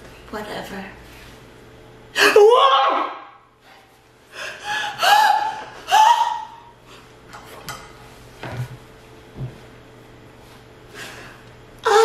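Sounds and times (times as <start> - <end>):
woman making high gliding squeals: 2.2 - 3.4, 5.0 - 6.7.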